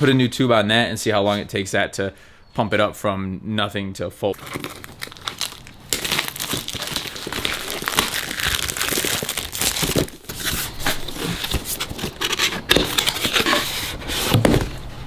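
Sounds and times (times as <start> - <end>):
plastic wrap crinkling: 4.3 - 13.6.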